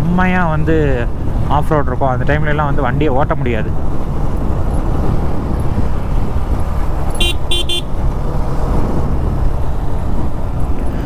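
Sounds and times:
wind rumble: 0.0s - 11.0s
motorcycle engine: 3.7s - 11.0s
horn short beeps: 7.2s - 7.9s.

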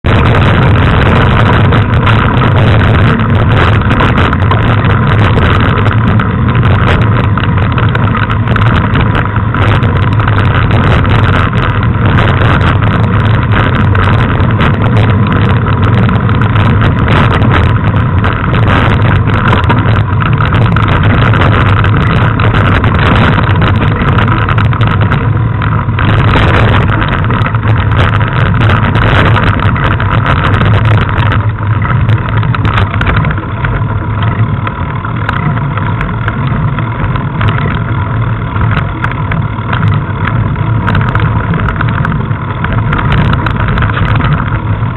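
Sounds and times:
bike frame rumble and rattle: 0.0s - 44.9s
wind on microphone: 0.0s - 44.9s.

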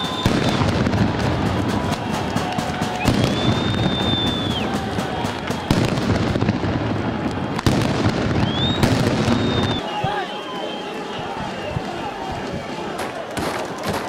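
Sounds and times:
long high whistle: 0.0s - 0.7s, 3.0s - 5.9s, 8.4s - 11.8s
sharp bangs and pops: 0.0s - 9.8s, 13.0s - 14.0s
street crowd noise: 0.0s - 14.0s.

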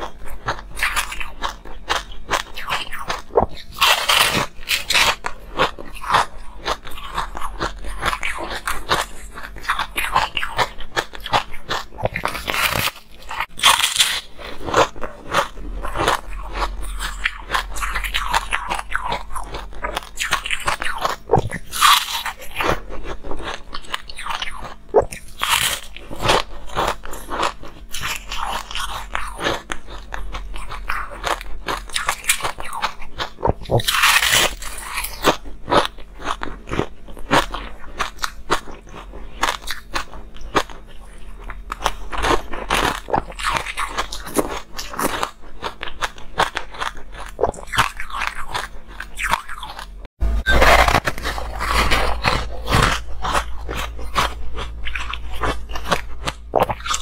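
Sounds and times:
crunchy ice chewing: 0.0s - 57.0s.

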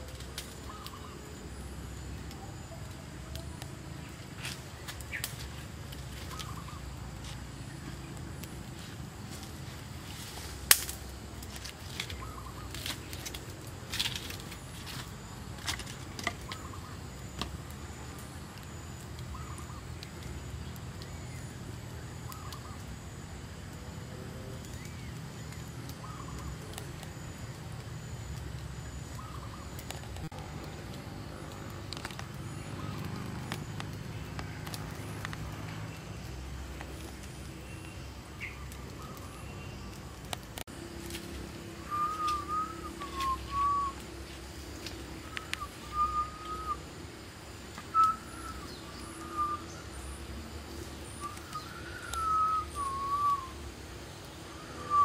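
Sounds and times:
faint bird chirps: 0.0s - 9.5s, 11.3s - 13.4s, 14.1s - 23.2s, 24.5s - 30.3s, 41.7s - 55.0s
fire popping: 0.0s - 55.0s
low background noise: 0.0s - 55.0s
wood fire crackling: 0.0s - 55.0s.

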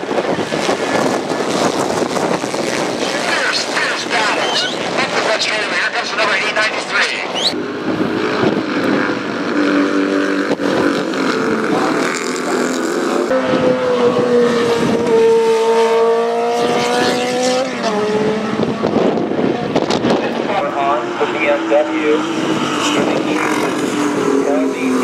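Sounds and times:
racing motorcycle engines: 0.0s - 25.0s.

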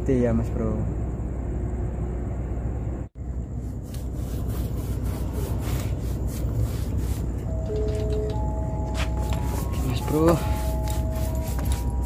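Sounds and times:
low background rumble: 0.0s - 8.9s
paint brush scratching on wood: 3.5s - 7.6s, 9.0s - 12.0s.

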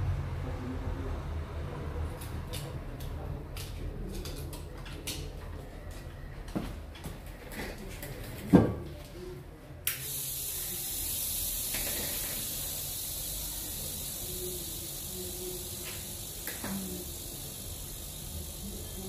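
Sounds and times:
high hiss of air: 9.9s - 19.0s.

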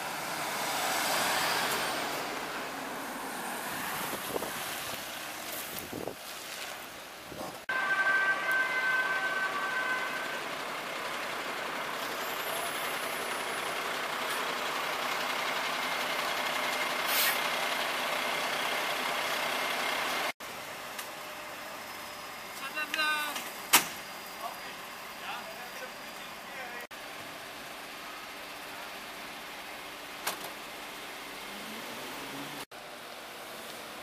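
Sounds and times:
truck engine running: 9.0s - 22.6s.

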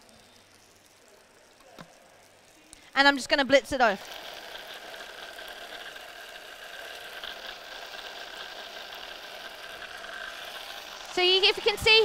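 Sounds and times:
electric food chopper whirring: 3.8s - 12.0s.

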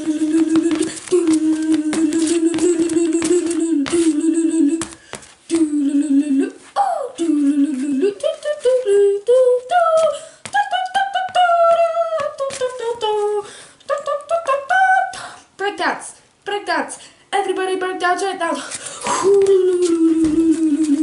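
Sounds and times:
child humming and singing: 0.0s - 4.9s, 5.5s - 13.4s, 19.1s - 21.0s.

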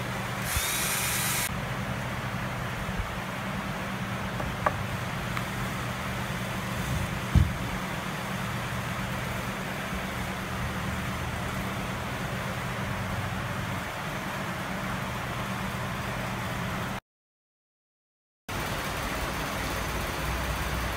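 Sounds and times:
dull knock on wooden toolbox: 7.3s - 7.6s.

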